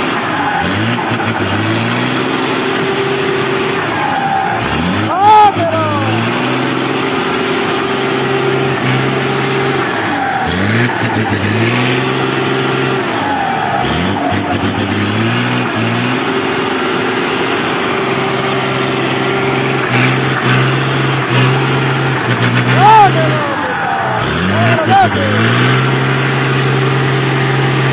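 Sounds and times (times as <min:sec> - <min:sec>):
diesel truck engine under load: 0:00.0 - 0:27.9.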